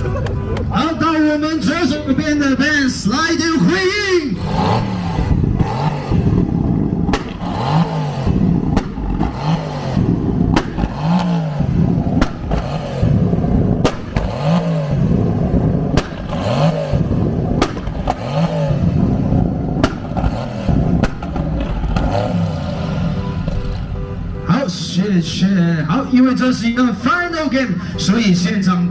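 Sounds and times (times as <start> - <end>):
car engines revving: 0.0 - 28.9
sharp exhaust cracks: 3.7 - 24.0.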